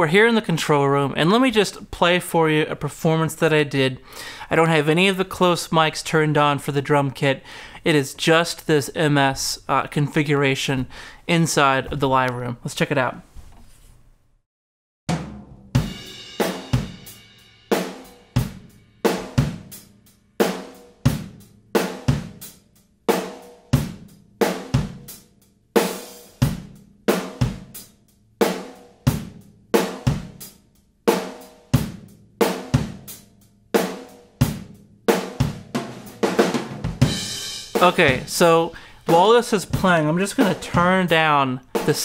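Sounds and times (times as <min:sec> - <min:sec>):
drum kit playing a beat: 0:15.1 - 0:42.0.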